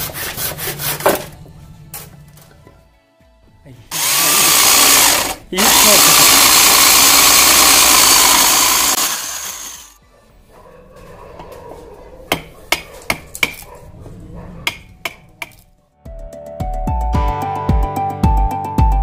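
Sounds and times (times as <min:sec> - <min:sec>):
electric drill boring into wood: 0:03.9 - 0:10.0
hammer striking wood chisel: 0:12.3 - 0:13.6, 0:14.7 - 0:15.6.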